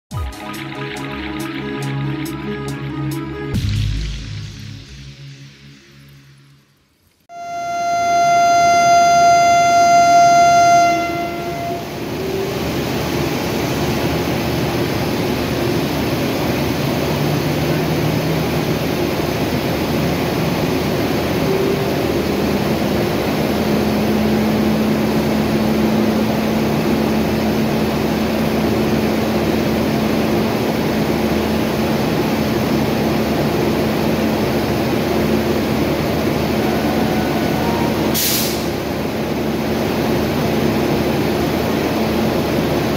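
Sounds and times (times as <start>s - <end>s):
train horn long high note: 7.3s - 13.0s, 36.1s - 38.8s
train rumble and hiss: 7.9s - 42.9s.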